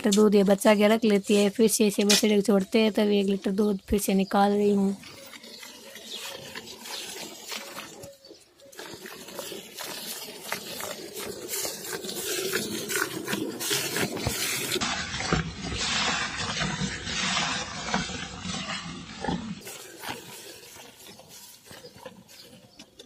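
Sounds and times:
milk squirting into bucket: 5.2 - 18.2.

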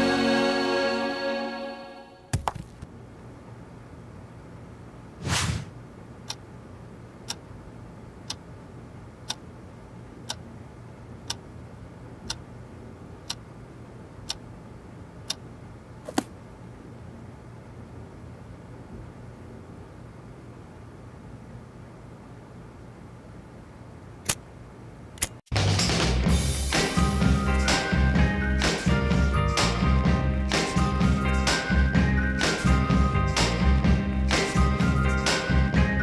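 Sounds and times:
music: 0.0 - 2.3, 25.5 - 36.0
faint low hum: 2.4 - 25.3
clock ticking: 9.2 - 9.4, 10.2 - 10.4.

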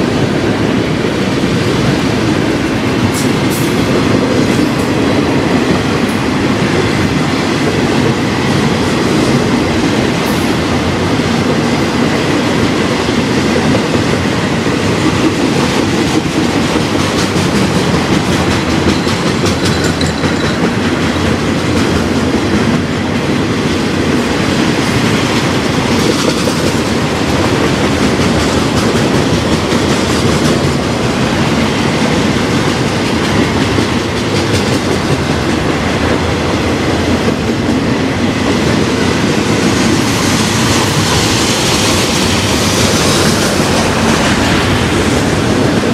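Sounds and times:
train rumble: 0.0 - 45.9
train wheels clattering on rails: 0.0 - 45.9.

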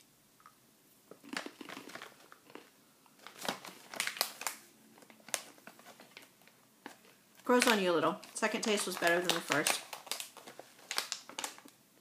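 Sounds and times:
chickpeas crunching as chewed: 1.1 - 6.3.

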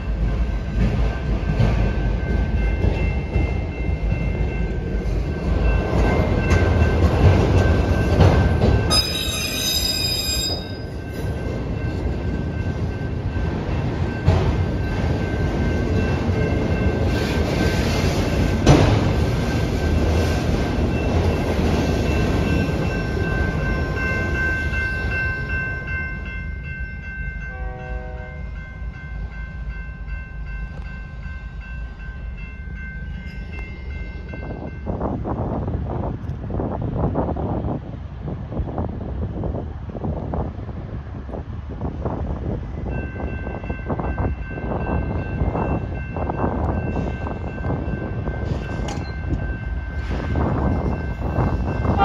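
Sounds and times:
train rumbling on rails: 0.0 - 52.0
high ringing tones: 7.6 - 17.0.

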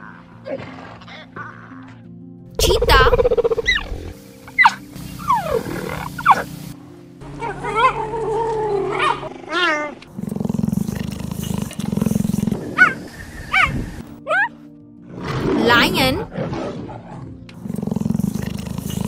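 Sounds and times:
cheetah chirping: 2.6 - 6.5, 10.2 - 14.5.

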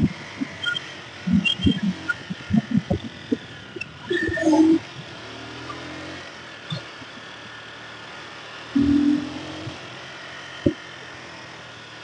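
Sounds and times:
loud pitched tone: 0.0 - 4.8, 8.8 - 9.8
motorcycle engine cruising: 0.0 - 12.0
road noise: 0.0 - 12.0.

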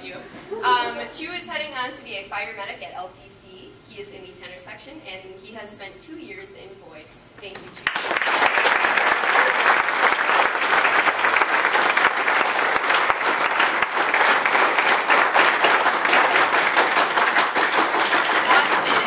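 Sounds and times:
crowd applauding: 7.8 - 19.0.

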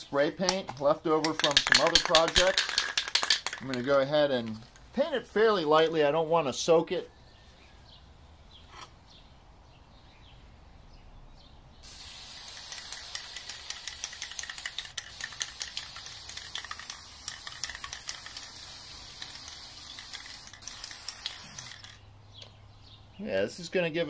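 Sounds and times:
aerosol spray paint hissing: 11.8 - 22.0.

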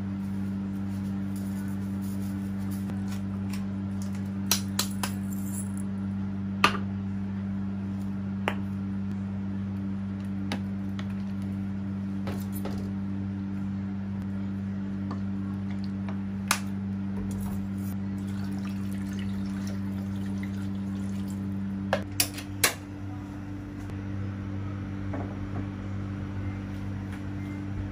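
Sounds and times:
low electrical hum: 0.0 - 27.9.

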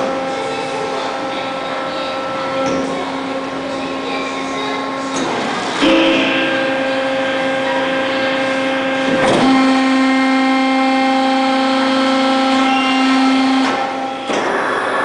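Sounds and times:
machine whining hum: 0.0 - 15.0.

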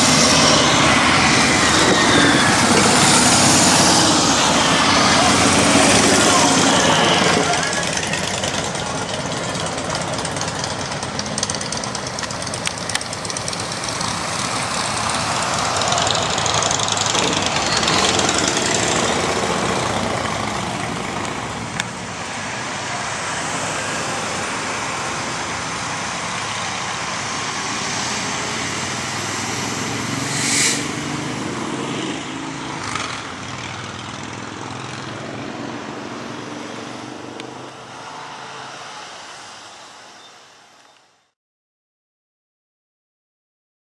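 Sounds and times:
road traffic passing: 0.0 - 41.4
brief sharp high sounds: 30.2 - 31.0.

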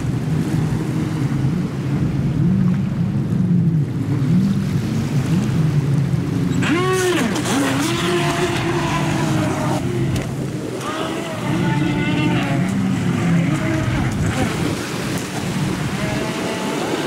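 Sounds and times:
water splashing: 4.0 - 17.0.

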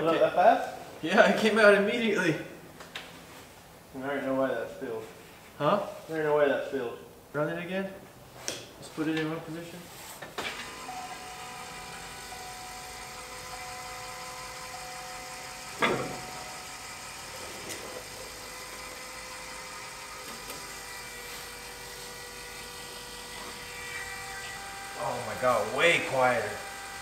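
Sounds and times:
electric fuel pump whining: 10.4 - 27.0.

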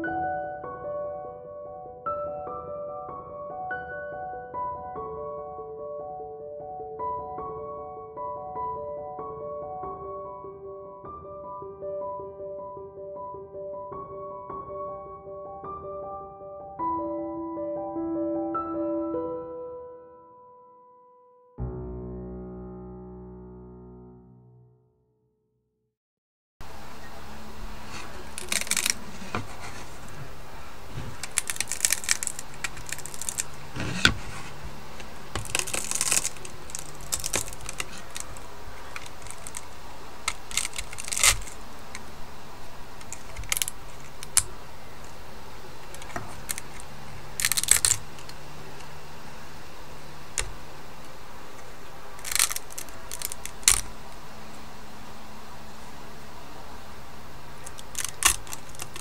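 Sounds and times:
plastic snapping and crackling: 27.9 - 42.2, 42.9 - 44.5, 45.8 - 48.4, 50.3 - 50.6, 51.6 - 54.0, 57.6 - 59.0.

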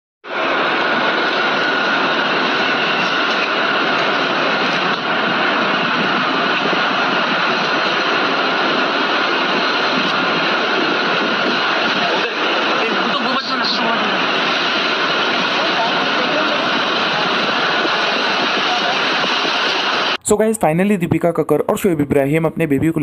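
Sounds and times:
loud hiss-like noise: 0.2 - 20.5.

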